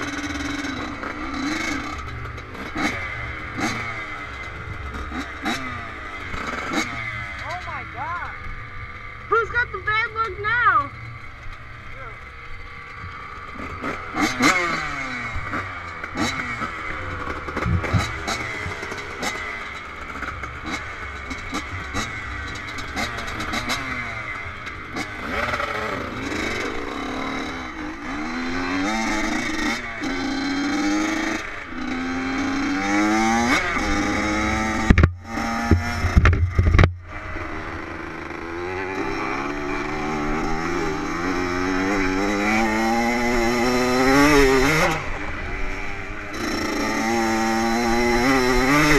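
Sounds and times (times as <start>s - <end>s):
dirt bike engines revving: 0.0s - 48.9s
low thumps on microphone: 34.9s - 37.0s.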